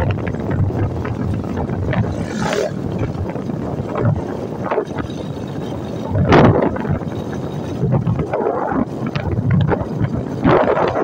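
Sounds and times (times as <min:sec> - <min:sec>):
low rumble of the ride: 0:00.0 - 0:11.0
wind buffeting microphone: 0:00.0 - 0:11.0
car passing with a whoosh: 0:00.8 - 0:04.2.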